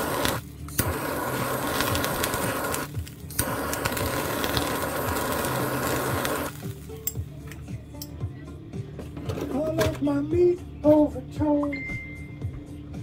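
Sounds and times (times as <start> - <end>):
kitchen torch hissing: 0.0 - 7.2
torch ignition click: 0.0 - 7.2.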